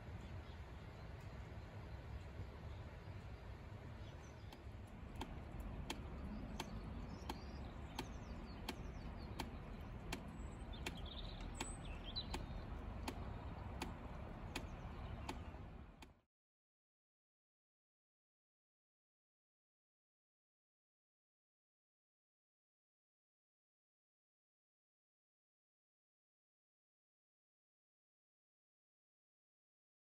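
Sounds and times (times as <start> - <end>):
faint bird chirps: 0.0 - 16.0
wind rumble on microphone: 0.0 - 16.1
regular ticking: 4.4 - 16.2.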